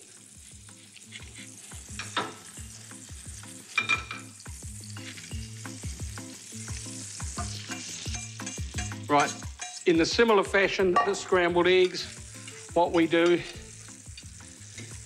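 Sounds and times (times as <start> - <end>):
butter sizzling in frying pan: 0.0 - 15.0
fork clicking against metal bowl: 7.4 - 9.9.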